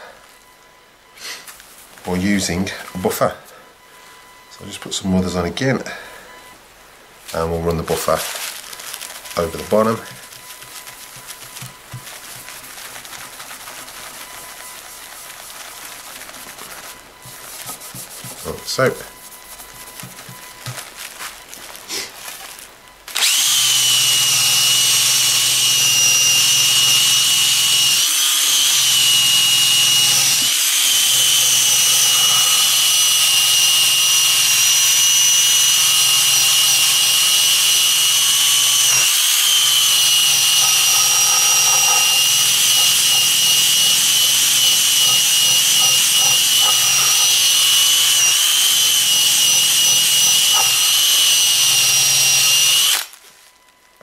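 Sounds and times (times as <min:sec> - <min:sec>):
drill motor whine: 0:09.4 - 0:12.7, 0:23.1 - 0:53.2.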